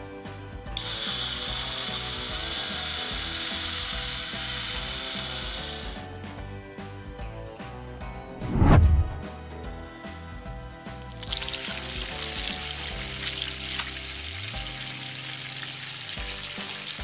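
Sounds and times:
small electric motor whirring: 0:00.8 - 0:06.1.

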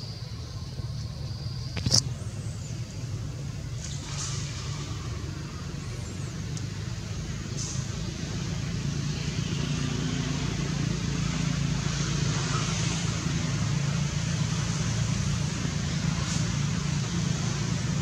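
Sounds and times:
low engine hum: 0:00.0 - 0:18.0.

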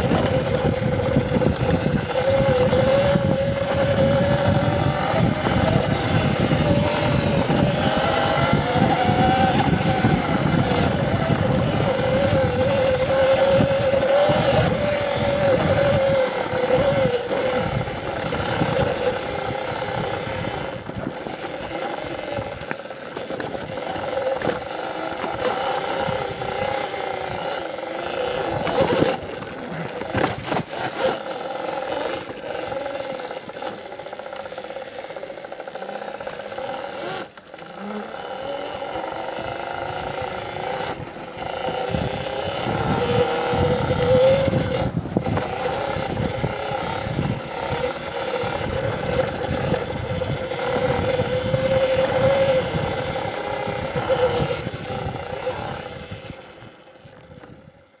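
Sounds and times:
electric motorbike motor whining: 0:00.0 - 0:58.0
bike clattering over rough ground: 0:21.0 - 0:32.6.

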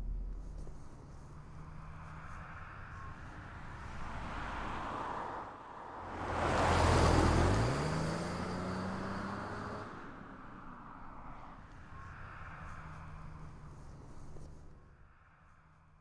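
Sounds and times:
car engine accelerating: 0:00.0 - 0:14.8.

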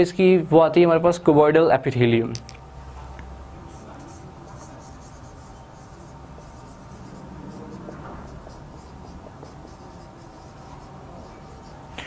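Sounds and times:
marker pen scratching on whiteboard: 0:03.7 - 0:12.0.

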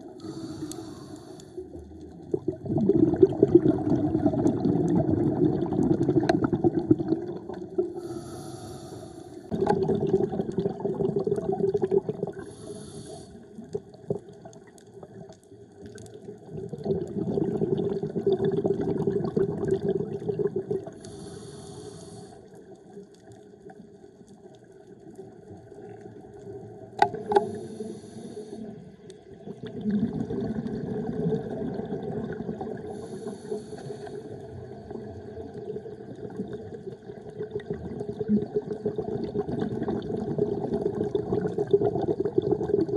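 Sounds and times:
regulator inhale hiss: 0:00.1 - 0:01.6, 0:07.9 - 0:09.5, 0:12.4 - 0:13.5, 0:21.0 - 0:22.6, 0:27.2 - 0:28.8, 0:32.9 - 0:34.5
bubbling exhaust: 0:01.6 - 0:08.8, 0:09.5 - 0:14.3.

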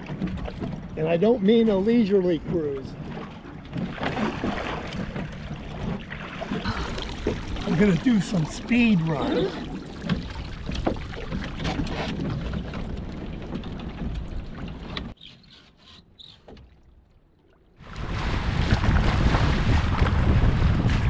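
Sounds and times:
water splashing against hull: 0:00.0 - 0:21.0
water streaming past hull: 0:00.0 - 0:21.0
wind rushing on microphone: 0:17.8 - 0:21.0.

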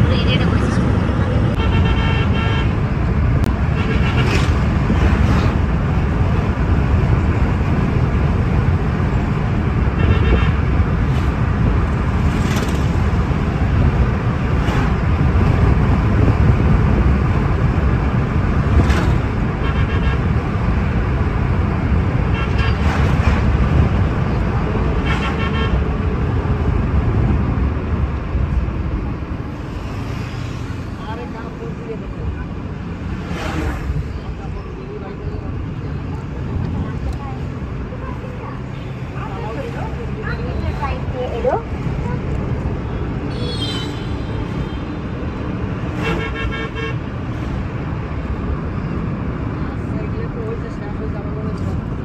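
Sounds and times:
road and engine rumble in car: 0:00.0 - 0:52.0
vehicle horn honks: 0:01.6 - 0:02.7, 0:10.0 - 0:10.7, 0:19.6 - 0:20.3, 0:22.3 - 0:22.8, 0:25.0 - 0:25.8, 0:46.0 - 0:47.0.

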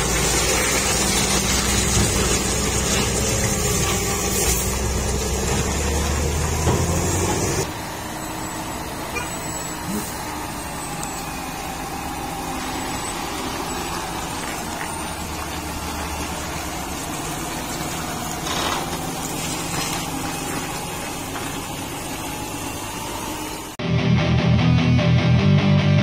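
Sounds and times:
truck diesel engine running: 0:00.0 - 0:23.8.

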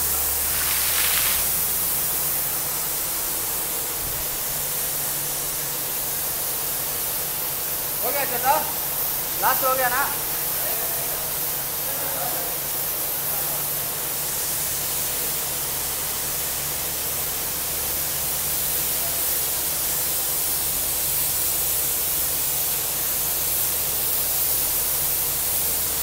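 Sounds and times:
compressor humming: 0:00.0 - 0:11.6
rushing hiss of air and water: 0:00.0 - 0:26.0.

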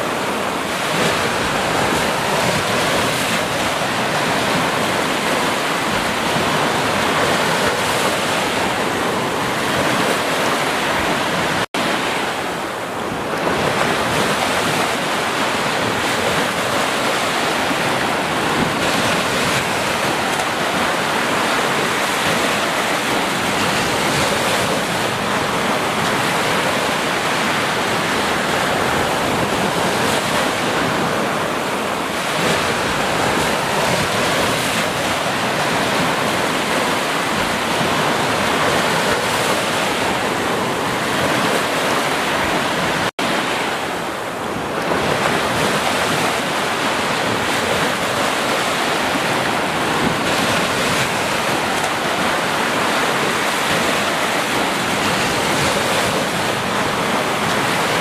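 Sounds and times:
small waves breaking on beach: 0:00.0 - 0:58.0.

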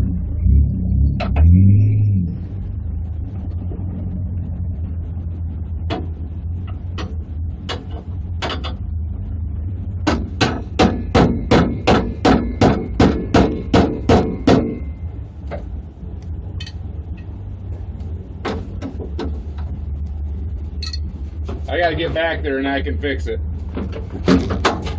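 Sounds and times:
hammer striking metal: 0:10.1 - 0:14.9.

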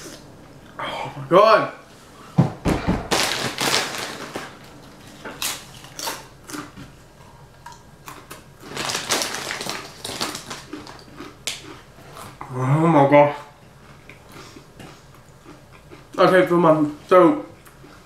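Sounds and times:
plastic bag crinkling: 0:03.1 - 0:06.2, 0:08.6 - 0:11.1
chips crunching when chewed: 0:05.4 - 0:12.5.

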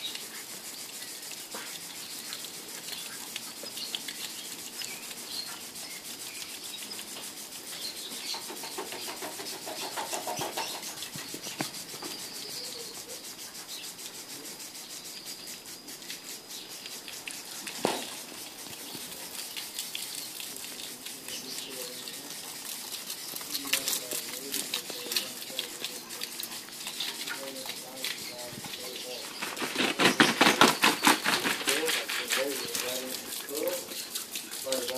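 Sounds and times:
sprinkler spraying water: 0:00.0 - 0:34.9.

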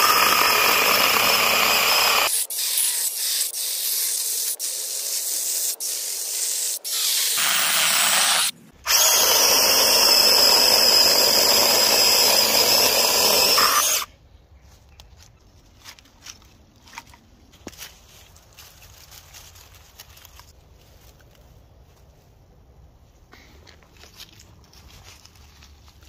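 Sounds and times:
electric chainsaw cutting log: 0:00.0 - 0:14.1
dry twigs crackling: 0:14.6 - 0:21.5.

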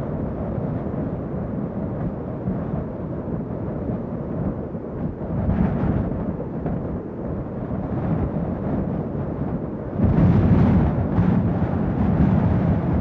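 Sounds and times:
wind blowing in gusts: 0:00.0 - 0:13.0.

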